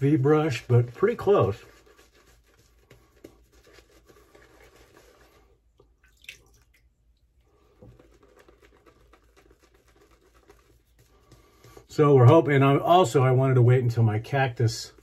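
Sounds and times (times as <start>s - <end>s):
shaving brush swishing on face: 0.0s - 5.6s, 7.8s - 12.4s.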